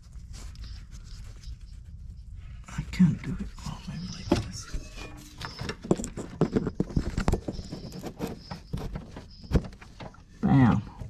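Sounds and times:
car parts knocking and rattling: 0:05.4 - 0:10.3.

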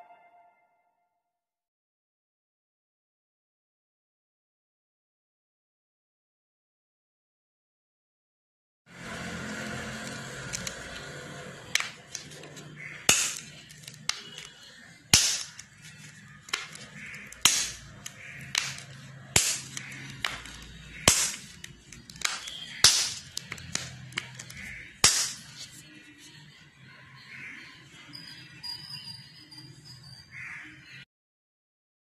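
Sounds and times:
pop-it toy popping: 0:13.0 - 0:25.6.

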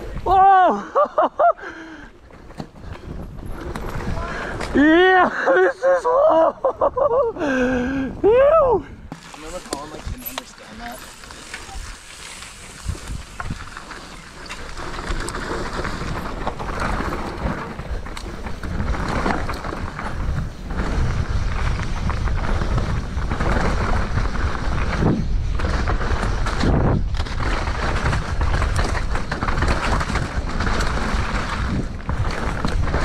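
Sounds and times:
wind buffeting microphone: 0:11.6 - 0:33.0.

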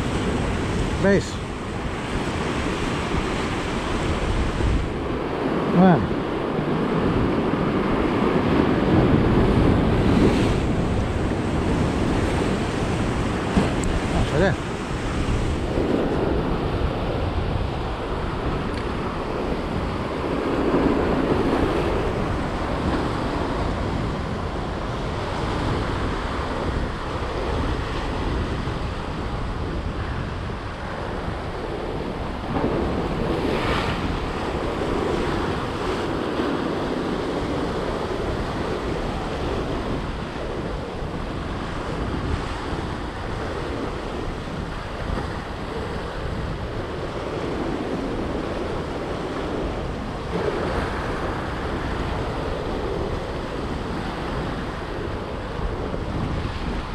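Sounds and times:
surf breaking over rocks: 0:00.0 - 0:28.6, 0:32.2 - 0:40.7
wind buffeting microphone: 0:00.0 - 0:56.9.

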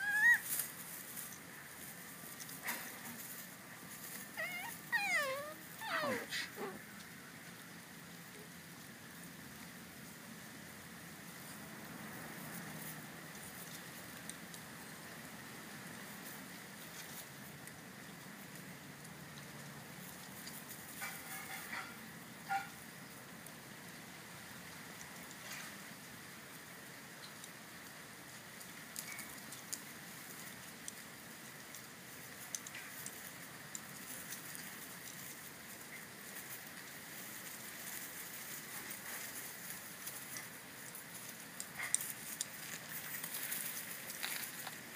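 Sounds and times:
puppies scuffling in grass: 0:00.0 - 0:24.1, 0:24.8 - 0:44.9
background hiss: 0:00.0 - 0:44.9
small clicks and taps: 0:31.7 - 0:35.2.

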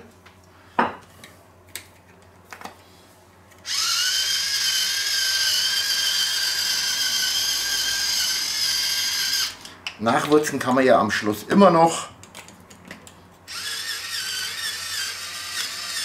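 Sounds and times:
electric salt mill motor whine: 0:03.6 - 0:09.7, 0:13.5 - 0:16.0.

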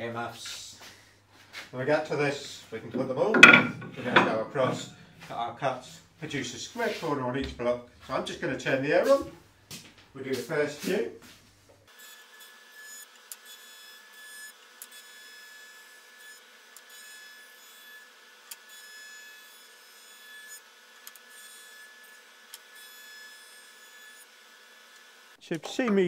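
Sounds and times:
wood clicks and knocks: 0:03.0 - 0:05.3.

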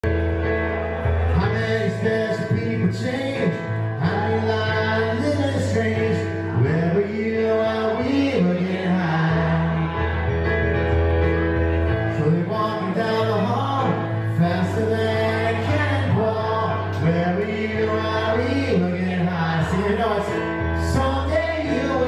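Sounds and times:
piano playing: 0:00.0 - 0:22.0
man singing: 0:01.2 - 0:10.3, 0:12.0 - 0:22.0.

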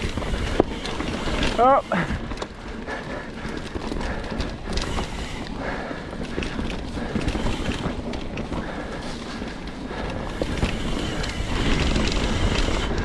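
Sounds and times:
bike knocking and rattling: 0:00.0 - 0:13.0
bike tyres on dirt trail: 0:00.0 - 0:13.0.

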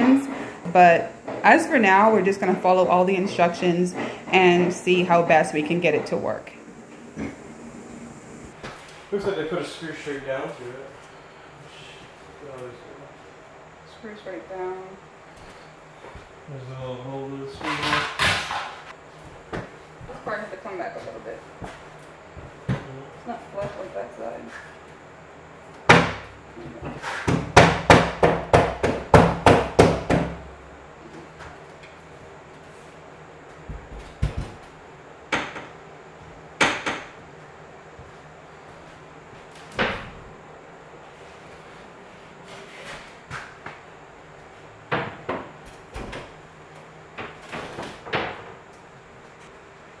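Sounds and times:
knocks on a wall panel: 0:27.2 - 0:30.4.

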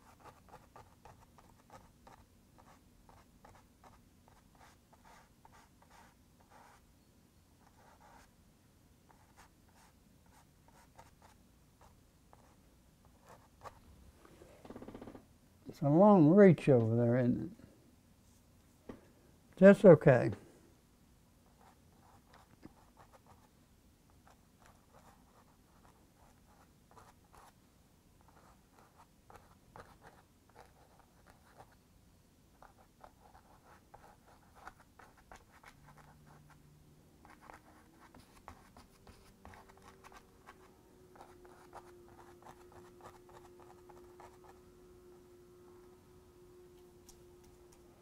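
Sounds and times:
faint steady hum: 0:00.0 - 0:48.0.

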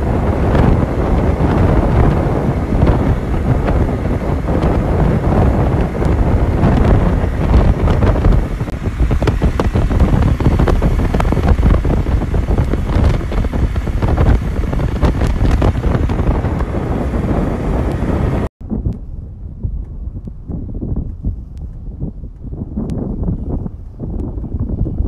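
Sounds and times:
motorcycle running: 0:00.0 - 0:18.5
wind buffeting microphone: 0:00.0 - 0:25.0.

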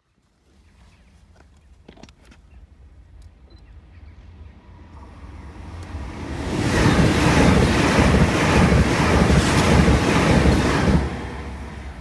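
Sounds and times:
train passing at speed: 0:04.1 - 0:12.0
wind buffeting microphone: 0:05.4 - 0:12.0.

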